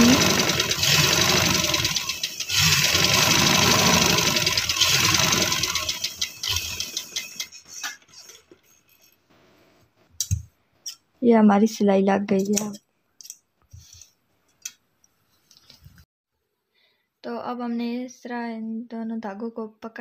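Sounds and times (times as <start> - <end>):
sewing machine running: 0.0 - 7.8.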